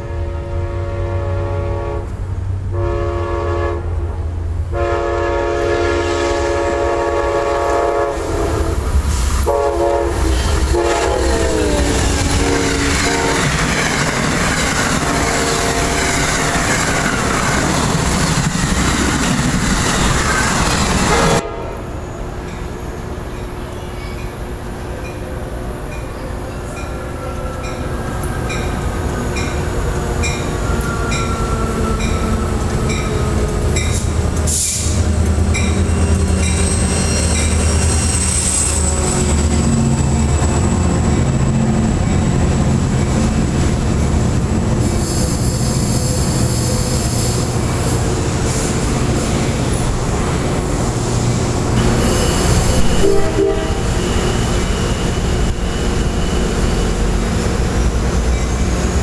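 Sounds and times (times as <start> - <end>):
diesel locomotive rumble: 0.0 - 59.0
train wheels squealing: 22.0 - 42.3, 44.8 - 50.0, 51.3 - 59.0.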